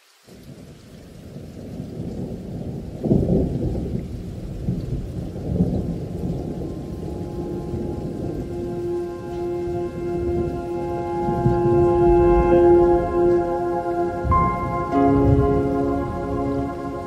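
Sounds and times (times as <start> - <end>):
heavy rain: 0.0 - 17.0
thunder rumbling: 1.2 - 17.0
steady musical tones: 6.7 - 17.0.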